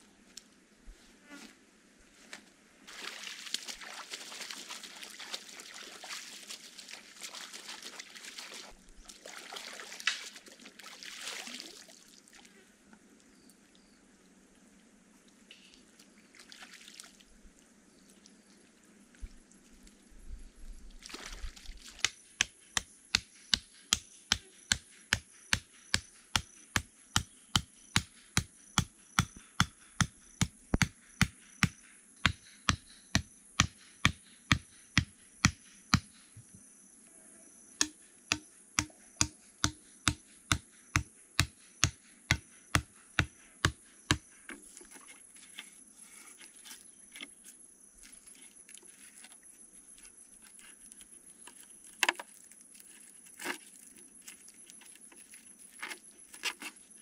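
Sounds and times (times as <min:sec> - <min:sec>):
hammer knocking stake: 0:22.0 - 0:36.1, 0:37.8 - 0:44.2.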